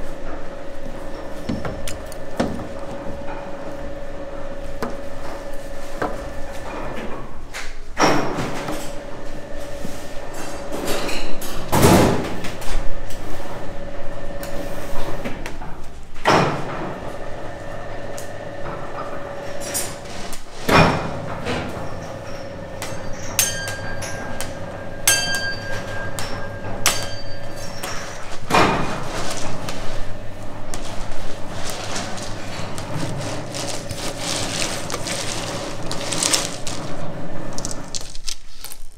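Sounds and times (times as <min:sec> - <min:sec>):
candy scraping strokes: 0:28.0 - 0:38.9.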